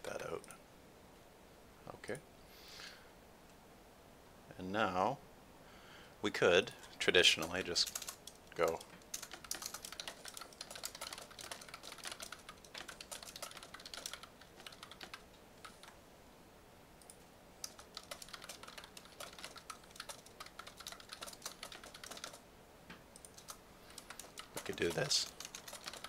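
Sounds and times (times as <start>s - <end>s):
typing on computer keyboard: 7.2s - 16.0s, 17.0s - 22.4s, 23.2s - 26.0s.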